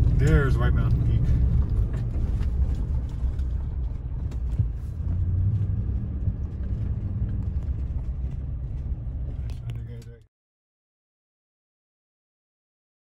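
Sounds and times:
car driving on gravel road: 0.0s - 10.2s.

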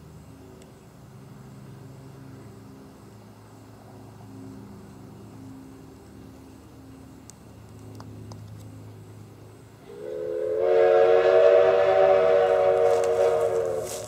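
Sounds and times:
steam locomotive whistle: 9.8s - 14.0s.

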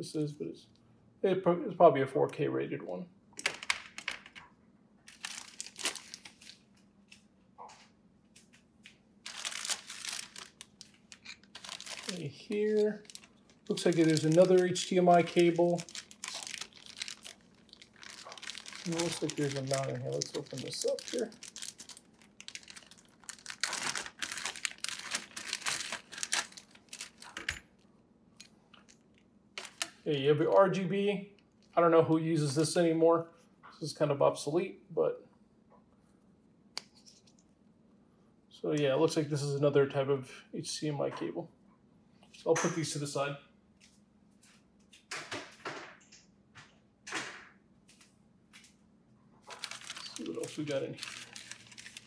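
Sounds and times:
plastic bags crinkling: 5.1s - 6.7s, 9.2s - 27.8s, 28.8s - 30.7s, 49.4s - 52.0s.

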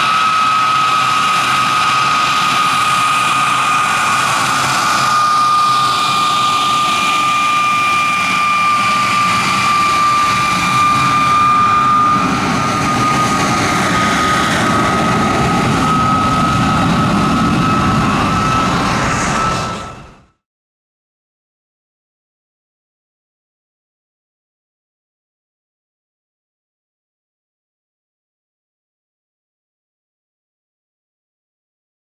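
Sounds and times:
jet engine whining: 0.0s - 20.4s.

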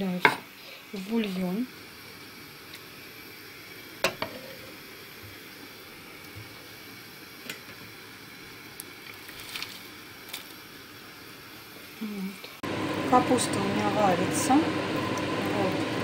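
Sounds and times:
broth simmering with soft hiss: 0.0s - 16.0s
cabbage splashing into pot: 8.8s - 10.6s.

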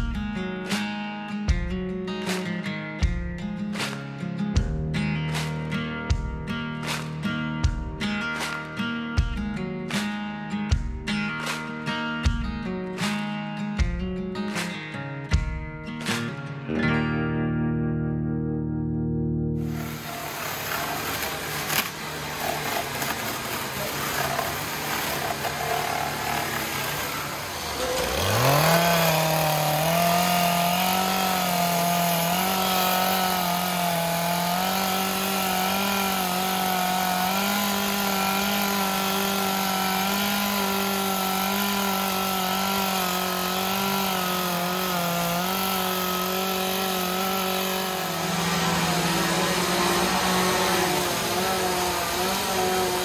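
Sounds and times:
chainsaw revving and carving wood: 19.6s - 53.0s.

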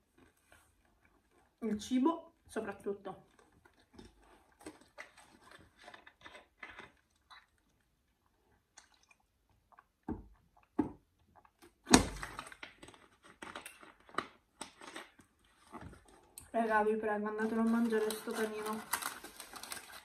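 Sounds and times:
chewing and mouth smacks: 3.3s - 11.8s
plastic bottle crackling: 11.7s - 16.4s, 17.4s - 20.0s.

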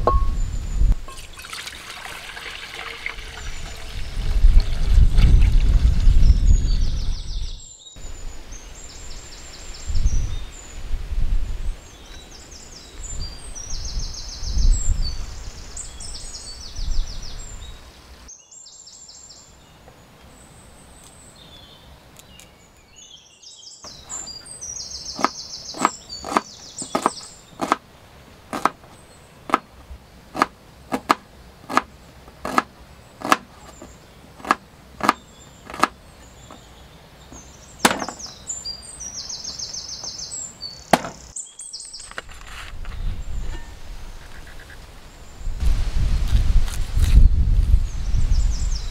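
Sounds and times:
small birds chirping: 11.7s - 43.6s
knife chopping on wooden board: 25.2s - 27.8s, 28.5s - 28.8s, 30.4s - 33.5s, 34.4s - 36.0s, 37.8s - 38.2s.

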